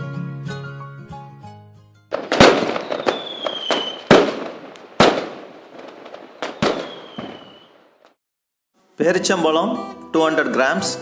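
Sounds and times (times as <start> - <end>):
firework bangs with crackle: 2.1 - 8.1
falling firework whistle: 2.2 - 7.9.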